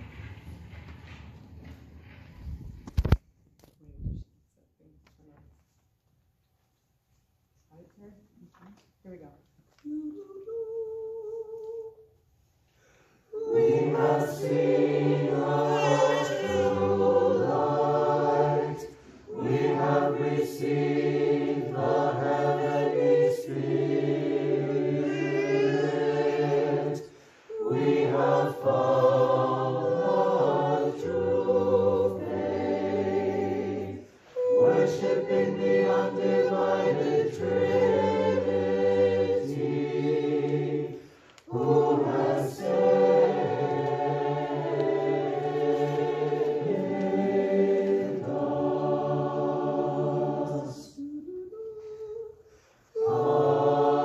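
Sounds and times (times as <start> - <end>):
mixed choir singing hymns: 12.8 - 54.0.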